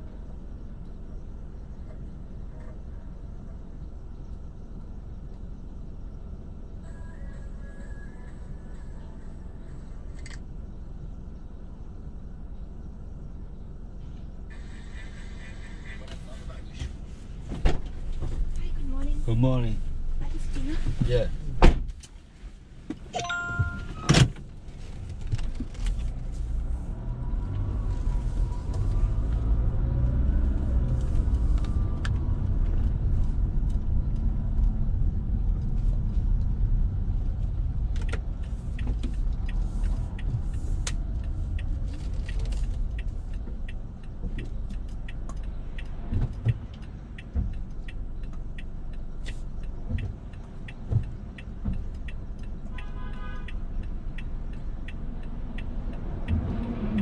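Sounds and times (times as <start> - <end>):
car engine and road rumble: 0.0 - 57.0
light regular ticking: 28.3 - 57.0.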